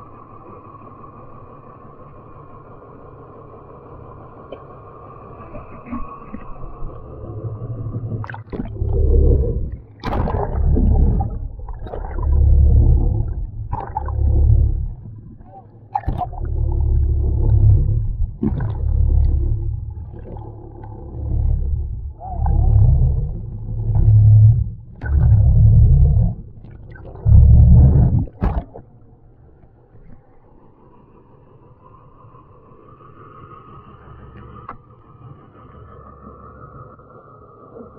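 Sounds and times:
low rumbling surges: 0.1 - 34.4
muffled underwater gurgling: 4.5 - 29.4
water splashing: 7.4 - 29.1.

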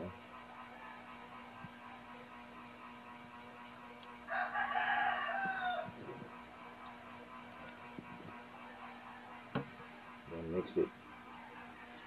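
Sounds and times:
steady low hum: 0.0 - 12.0
rooster crowing: 4.3 - 6.0.

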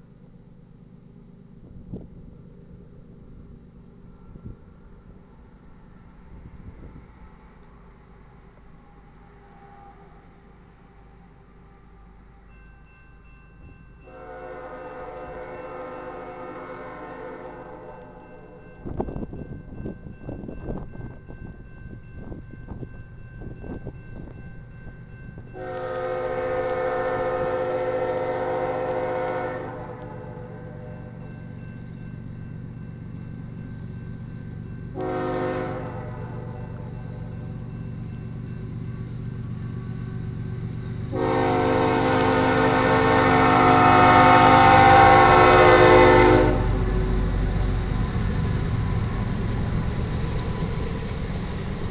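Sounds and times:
freight train rumble: 0.0 - 51.9
locomotive air horn blasts: 14.1 - 18.2, 25.6 - 30.9, 35.0 - 36.9, 41.1 - 47.0.

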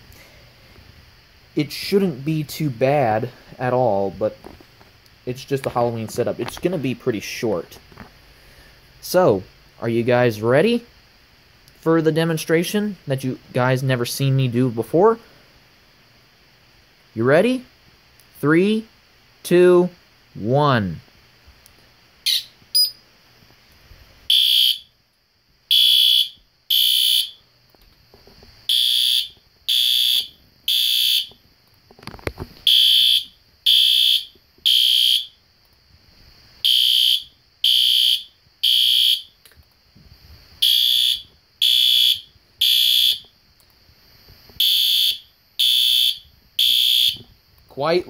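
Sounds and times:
fire alarm high-pitched beeps: 22.3 - 23.0, 24.3 - 24.9, 25.7 - 27.4, 28.7 - 31.4, 32.6 - 35.4, 36.6 - 39.4, 40.6 - 43.3, 44.6 - 47.3.

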